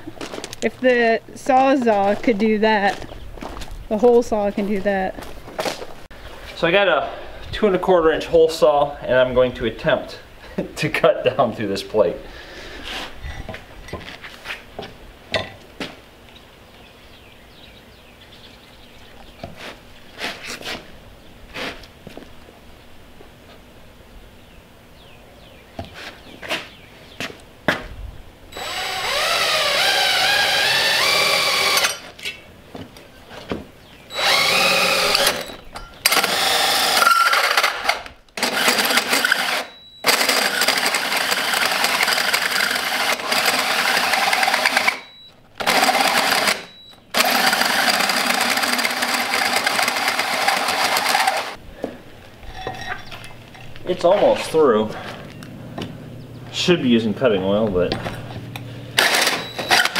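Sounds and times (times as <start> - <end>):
electric drill cutting steel: 28.5 - 32.1, 34.1 - 51.6, 59.0 - 59.9.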